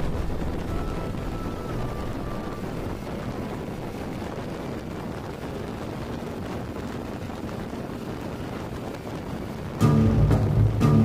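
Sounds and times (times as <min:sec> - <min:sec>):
motorcycle engine and tyres: 0:00.0 - 0:11.0
wind noise on microphone: 0:00.0 - 0:11.0.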